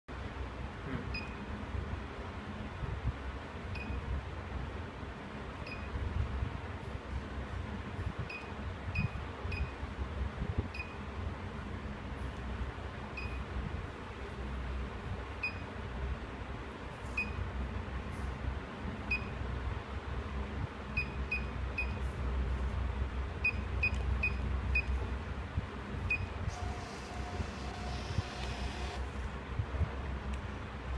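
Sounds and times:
receipt printer whirring: 26.5 - 29.2.

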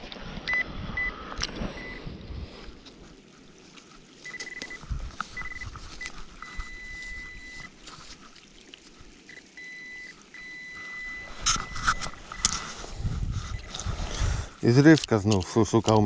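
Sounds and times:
pinpointer high beeping tone: 1.8 - 2.0, 4.2 - 4.8, 5.4 - 7.7, 9.3 - 12.6.

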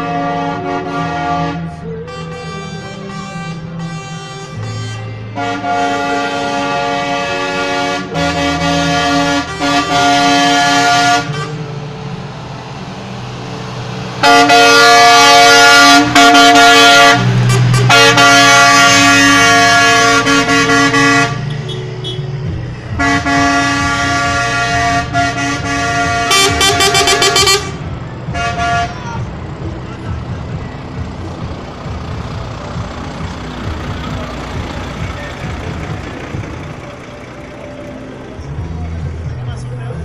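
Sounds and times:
truck air horn blasts: 0.0 - 11.8, 14.2 - 29.3
diesel engines running: 0.0 - 40.0
short horn toots: 23.0 - 27.8.

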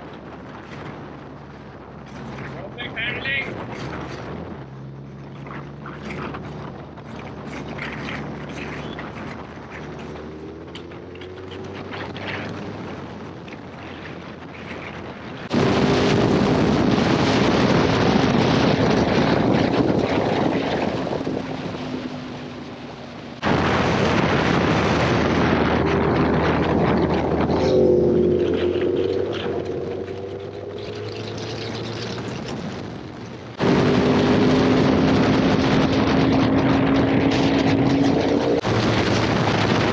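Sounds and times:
motorcycle engine while riding: 0.0 - 39.9
wind rushing: 0.0 - 39.9.

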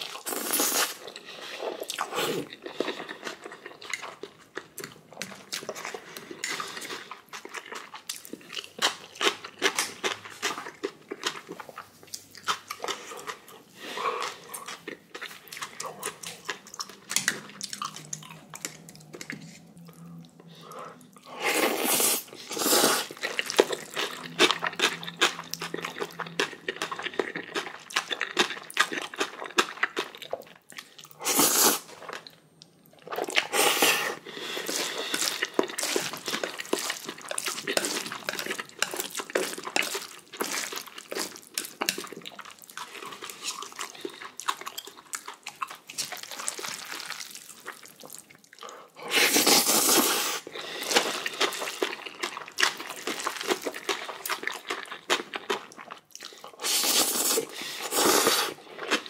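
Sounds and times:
wet chewing: 0.0 - 59.0
noodle slurps: 31.2 - 31.9, 49.1 - 51.8, 56.6 - 58.6.

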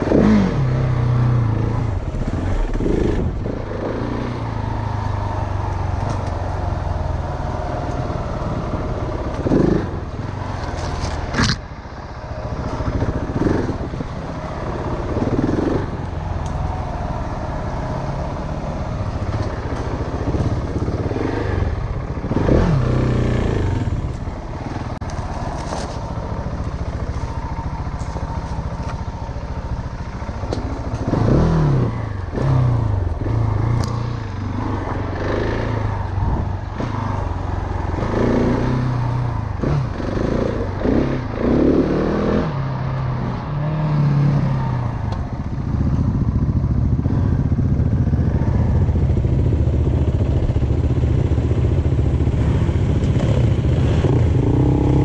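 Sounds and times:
dirt bike engine revving: 30.6 - 36.0.

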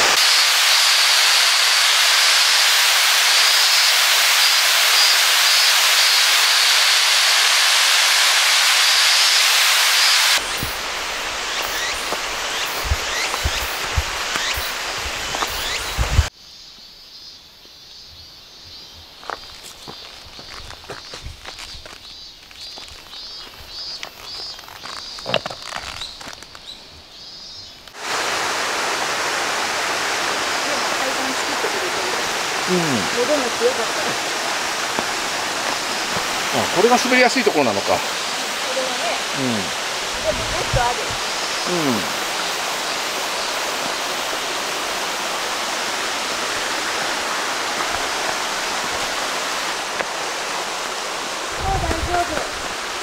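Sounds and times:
mountain stream rushing: 0.0 - 16.3, 27.9 - 53.0
bird calling: 9.2 - 16.3
footsteps on forest trail: 10.4 - 16.3, 18.6 - 27.9, 32.7 - 45.0, 46.2 - 53.0
twig snapping: 24.0 - 26.7.

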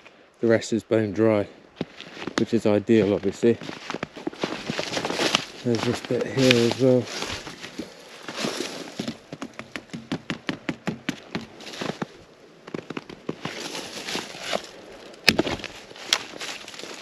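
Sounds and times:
dry wood crackling and creaking: 1.8 - 17.0
wood snapping: 12.8 - 17.0.

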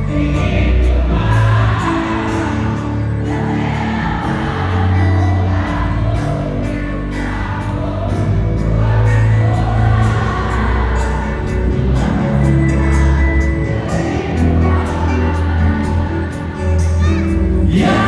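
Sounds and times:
live music with singing: 0.0 - 18.0.

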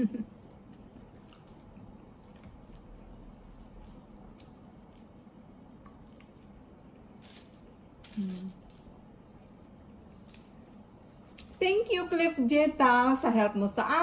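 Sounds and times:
chewing with wet mouth clicks: 0.4 - 6.5.

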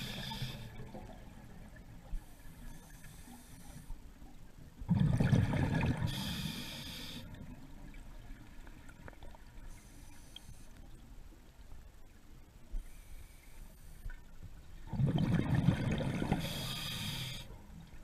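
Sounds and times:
diver breathing through regulator: 0.0 - 0.8, 2.2 - 4.0, 6.0 - 7.4, 16.3 - 17.6
gurgling rush of exhaled bubbles: 4.9 - 6.1, 14.9 - 16.5.

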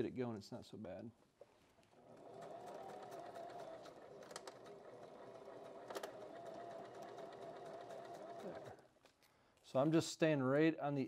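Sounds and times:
sewing machine running: 2.0 - 8.9.

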